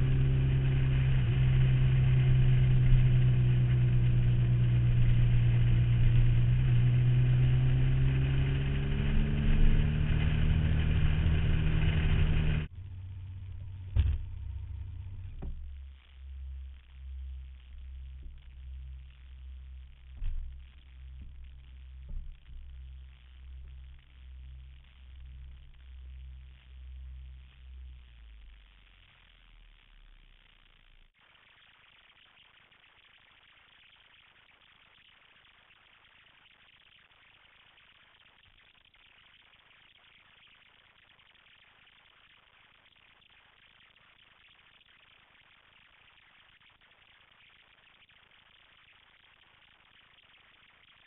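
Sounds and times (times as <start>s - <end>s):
motorcycle engine running: 0.0s - 27.4s
knock: 15.4s - 15.8s.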